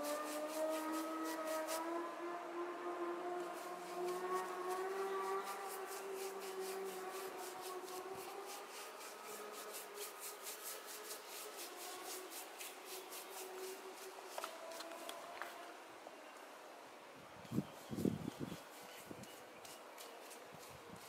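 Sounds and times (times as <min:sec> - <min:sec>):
hand tool scraping cement: 0:03.6 - 0:14.9, 0:18.0 - 0:21.0.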